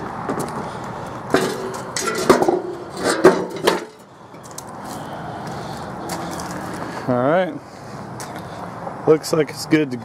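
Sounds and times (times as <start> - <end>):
metal clanks and scrapes: 1.3 - 4.6.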